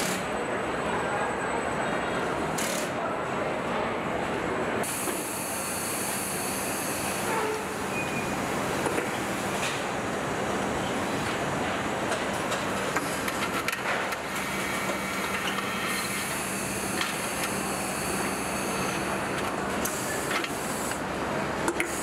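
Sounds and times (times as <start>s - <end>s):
machinery hum and hiss: 0.0s - 22.0s.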